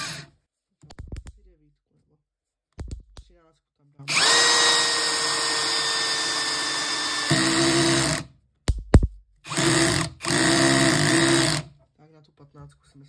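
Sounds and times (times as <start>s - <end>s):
drill driving a screw: 0.0s - 0.3s, 4.1s - 8.3s, 9.5s - 11.7s.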